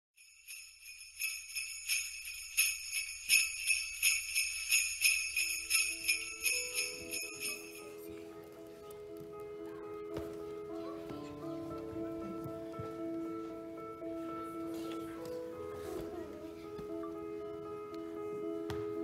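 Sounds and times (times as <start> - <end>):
jingle bells shaken: 0.2 - 8.4.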